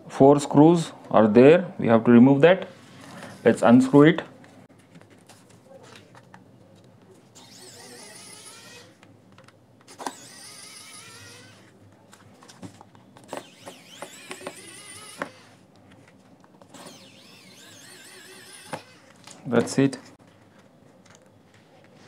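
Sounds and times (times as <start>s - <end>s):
electric screwdriver motor whine: 7.4s - 9.0s, 9.9s - 11.7s, 13.3s - 15.6s, 16.7s - 19.2s.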